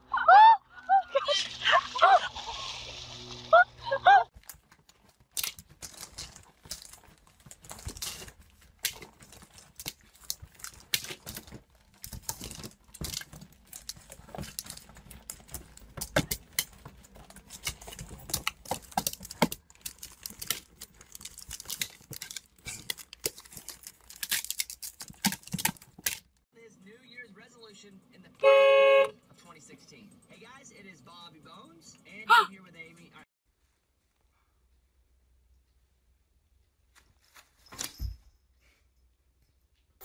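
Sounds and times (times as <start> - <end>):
paper crinkling and rustling: 4.3 - 26.4.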